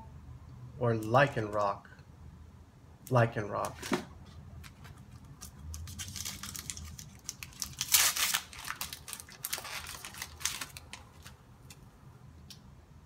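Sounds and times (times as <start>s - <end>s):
foil wrapper tearing and crinkling: 5.4s - 11.4s.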